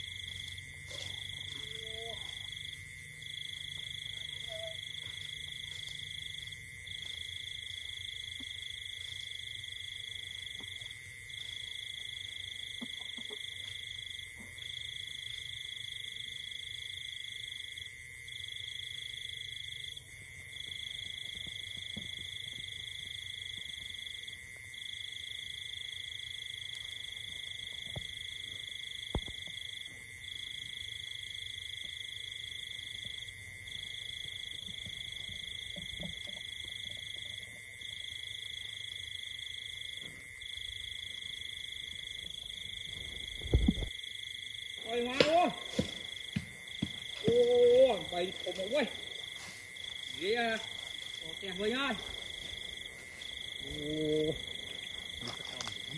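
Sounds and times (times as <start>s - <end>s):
high-pitched insect drone: 0.0s - 7.5s.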